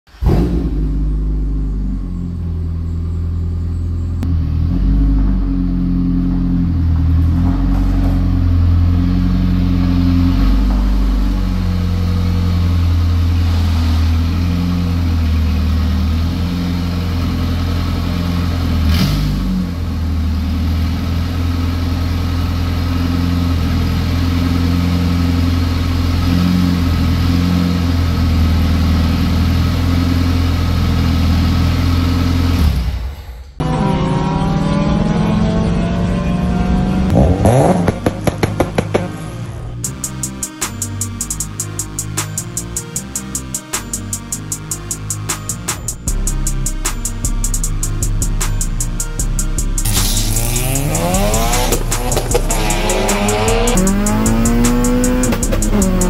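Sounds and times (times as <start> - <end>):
car engine low rumble: 0.0 - 56.0.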